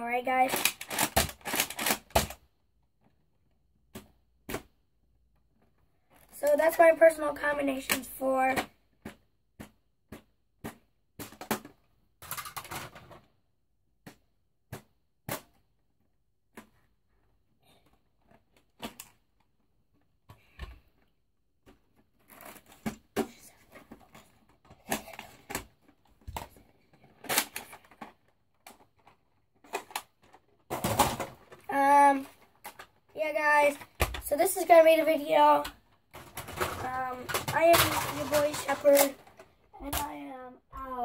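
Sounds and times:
rustling and knocking: 0:35.7 - 0:40.1.

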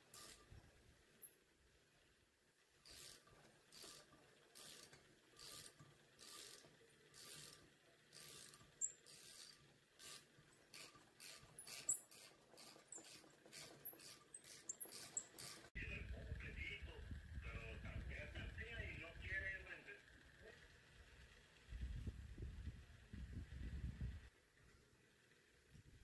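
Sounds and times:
ratchet wrench clicking: 0:00.1 - 0:00.4, 0:02.8 - 0:15.7.

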